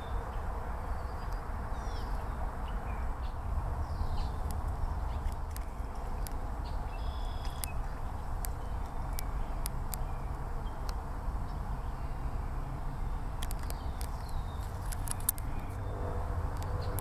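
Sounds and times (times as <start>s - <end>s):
steady low rumble: 0.0s - 17.0s
sharp clicks: 7.4s - 7.8s, 13.4s - 15.8s.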